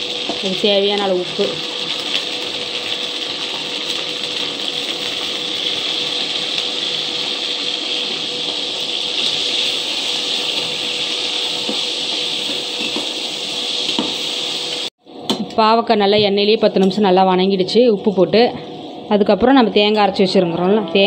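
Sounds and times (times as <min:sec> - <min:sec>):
slices sizzling in hot oil: 0:00.0 - 0:14.9.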